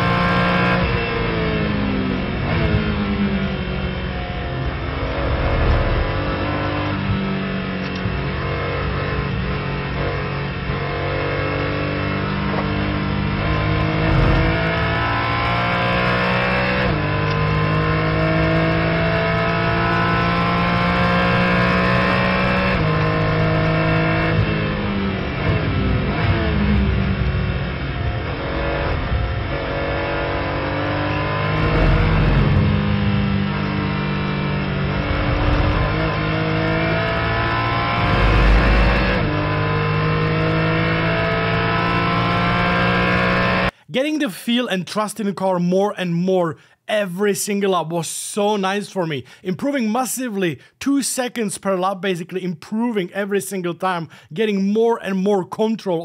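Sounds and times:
race car engine at full throttle: 0.0 - 43.8.

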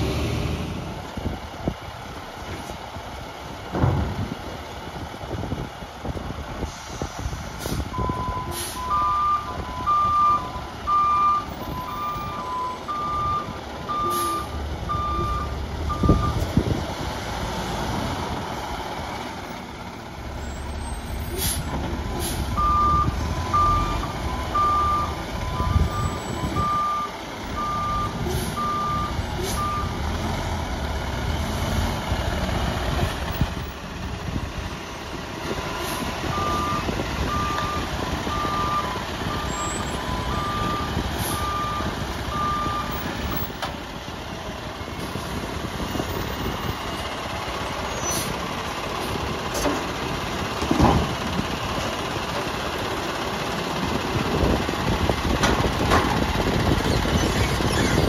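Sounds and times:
diesel engine running: 0.0 - 58.0
sharp thump: 3.7 - 4.3.

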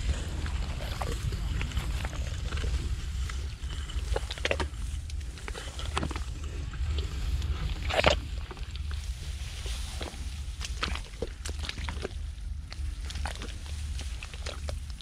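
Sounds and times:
low rumble: 0.0 - 15.0
leaves swishing and rustling: 7.0 - 11.4.

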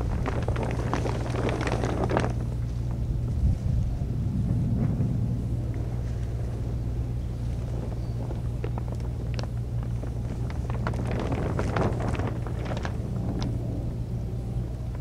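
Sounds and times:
ticks and crackles: 0.0 - 3.1, 6.9 - 13.6
low engine hum: 0.0 - 15.0.

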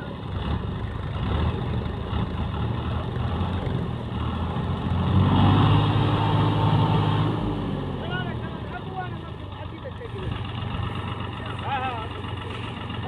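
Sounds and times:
tractor diesel engine revving: 0.0 - 13.0.

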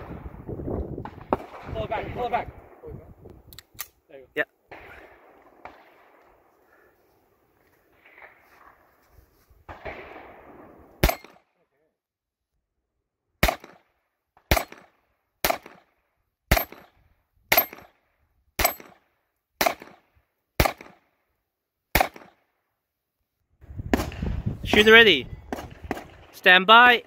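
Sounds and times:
pistol shots: 9.7 - 11.5, 13.4 - 13.9, 14.5 - 18.0, 18.6 - 21.1, 21.9 - 22.4.

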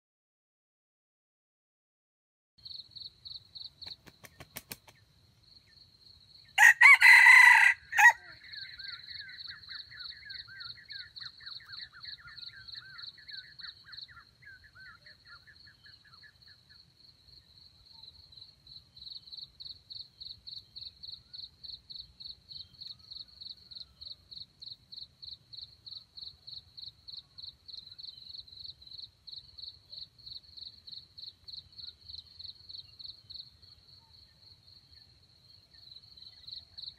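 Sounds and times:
insect chirping: 2.6 - 36.9
rooster crowing: 6.6 - 8.5.

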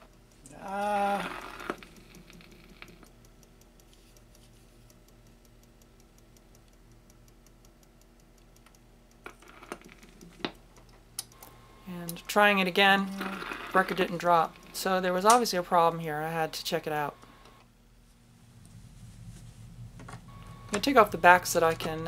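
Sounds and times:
record changer mechanism ticking: 0.0 - 17.8, 19.6 - 22.0
low hum: 11.5 - 22.0.

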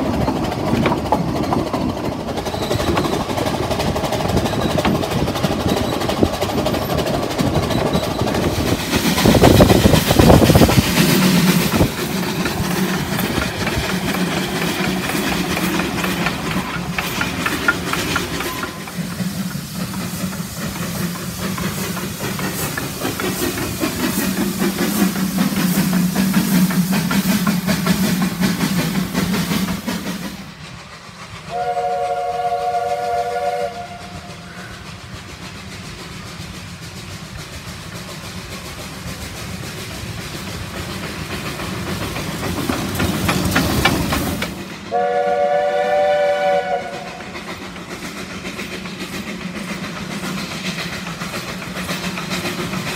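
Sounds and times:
steam locomotive running past: 0.0 - 52.9
train rumble and clatter: 0.0 - 52.9
steam whistle chime: 31.5 - 34.6, 44.9 - 47.2.

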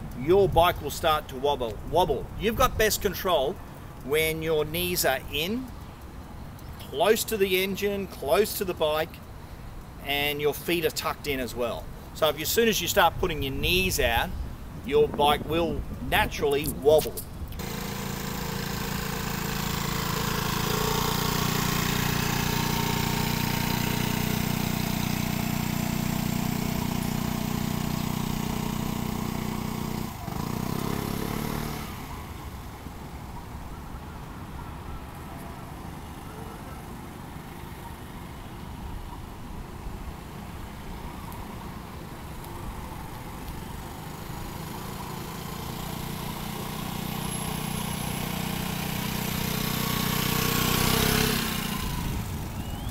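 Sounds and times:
scooter engine running: 17.6 - 32.8, 42.2 - 52.9.

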